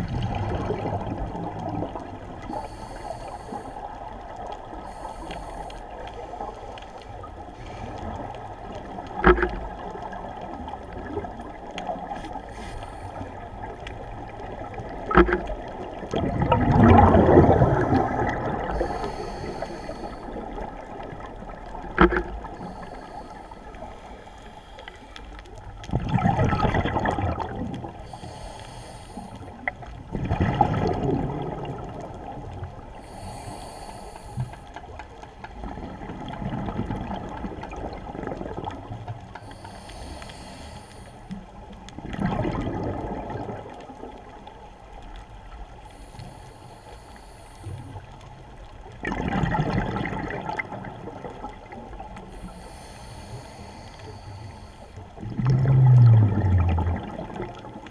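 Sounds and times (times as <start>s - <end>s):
underwater exhalation bubbling: 0.0s - 2.0s, 13.2s - 19.5s, 25.9s - 28.0s, 30.1s - 32.4s, 42.0s - 43.9s, 49.0s - 52.2s, 55.2s - 57.9s.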